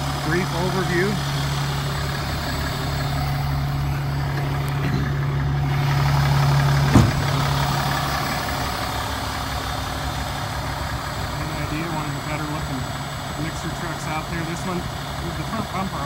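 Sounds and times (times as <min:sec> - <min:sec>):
diesel truck engine idling: 0:00.0 - 0:16.0
sharp knock: 0:06.9 - 0:07.4.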